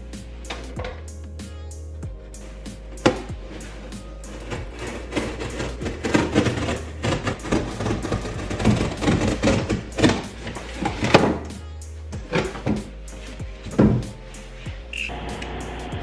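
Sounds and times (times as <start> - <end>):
knife slicing cardboard: 2.6 - 11.5.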